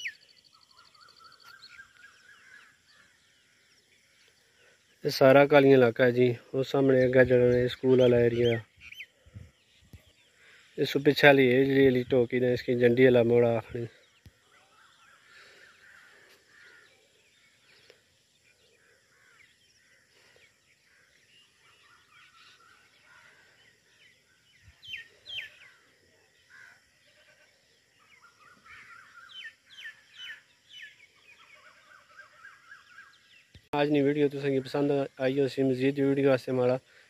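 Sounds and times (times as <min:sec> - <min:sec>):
faint birds chirping: 0:00.0 - 0:37.0.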